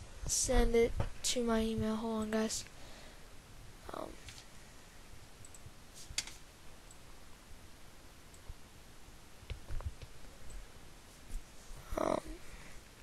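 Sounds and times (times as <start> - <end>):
faint steady hiss: 0.0 - 13.0
computer mouse clicks: 5.4 - 7.0.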